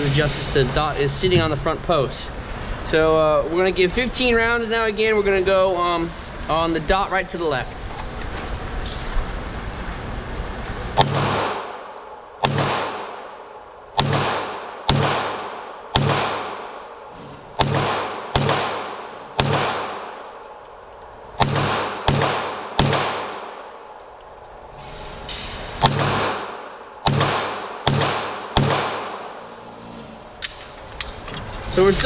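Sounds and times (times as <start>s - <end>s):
pistol shots echoing indoors: 11.0s - 20.4s, 21.4s - 23.8s, 25.8s - 29.4s.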